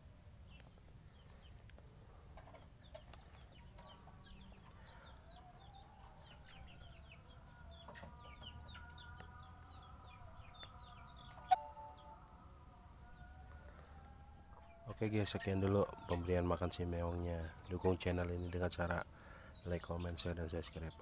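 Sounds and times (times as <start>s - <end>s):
birds chirping rapidly: 0.4s - 12.1s, 14.6s - 21.0s
low wavering bird call: 11.3s - 12.4s.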